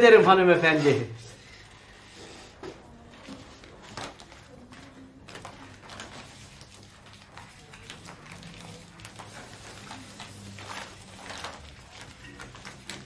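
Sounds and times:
paper rustling: 0.6 - 13.0.

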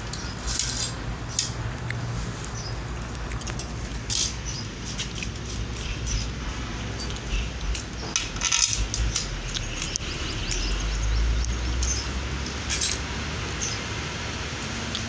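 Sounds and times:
metal scrape: 0.1 - 1.0
bolts clinking on metal bracket: 6.9 - 10.6.

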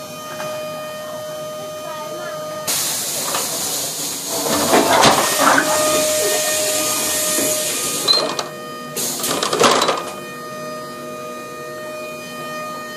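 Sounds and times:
compressed air hissing: 2.7 - 8.2.

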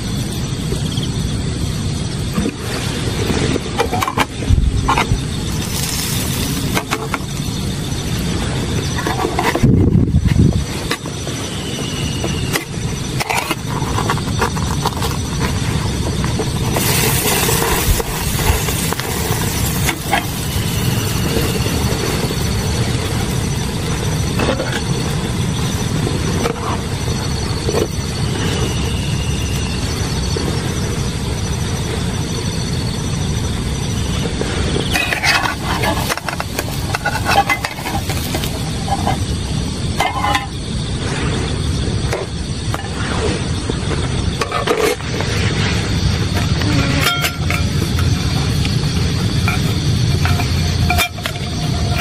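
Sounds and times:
gas stove burner roaring: 0.0 - 52.0
metal spatula scraping a pan: 34.9 - 39.2.

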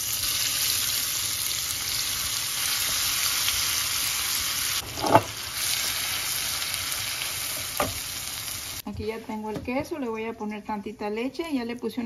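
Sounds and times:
food sizzling in hot oil: 0.0 - 8.8.

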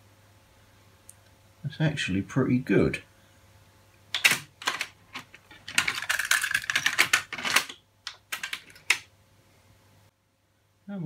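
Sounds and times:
sharp clicks and clatter: 4.2 - 9.1.

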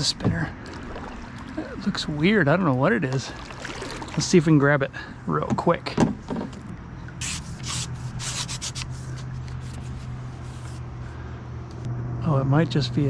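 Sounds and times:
steady low hum: 0.0 - 13.0
rubbing and scratching: 7.2 - 10.9.

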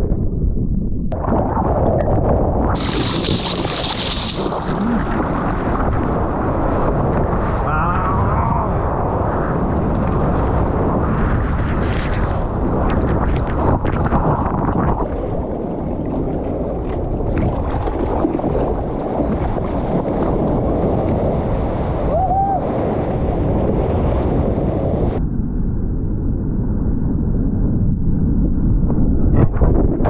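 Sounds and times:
wind rumbling on microphone: 0.0 - 30.0
surf rushing: 1.2 - 25.2.

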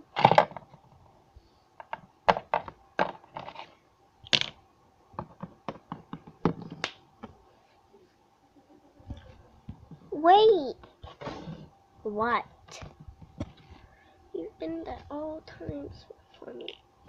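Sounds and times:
plastic toys tapping and clicking: 5.2 - 7.0.

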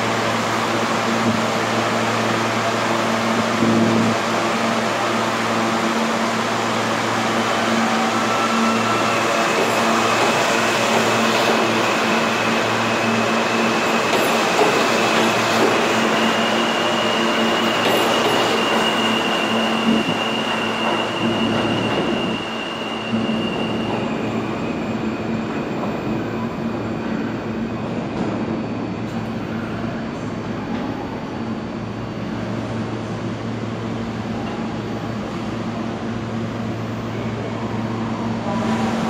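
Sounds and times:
subway train accelerating: 0.0 - 39.0
high wheel squeal: 7.2 - 25.9.

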